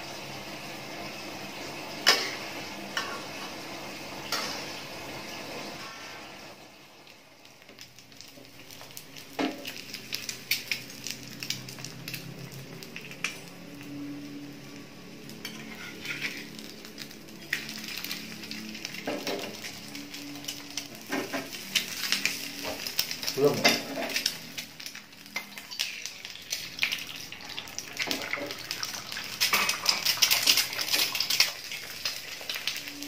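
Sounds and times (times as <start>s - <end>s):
egg sizzling in a pan: 0.0s - 33.0s
pan and utensils clinking: 15.4s - 16.6s, 20.5s - 24.3s, 29.4s - 31.9s.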